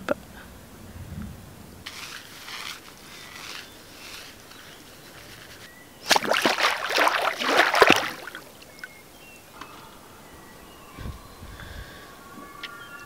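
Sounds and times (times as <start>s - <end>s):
water splashing: 6.0s - 9.0s.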